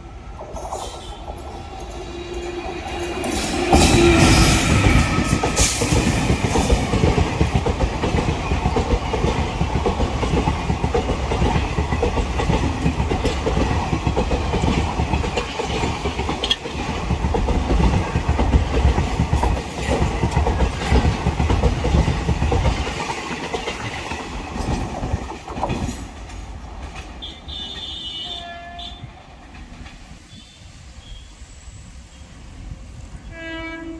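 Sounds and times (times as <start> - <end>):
train wheels clattering over rail joints: 0.5 - 28.0, 29.3 - 30.5
train horn: 0.9 - 5.8, 27.2 - 29.2, 33.2 - 33.9.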